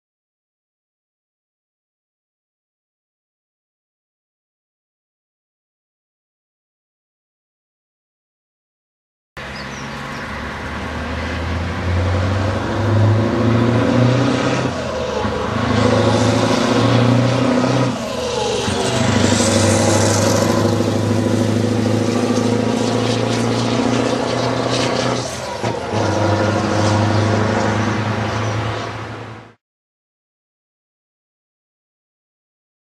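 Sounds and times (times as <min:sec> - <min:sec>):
truck engine accelerating: 0:09.4 - 0:29.6.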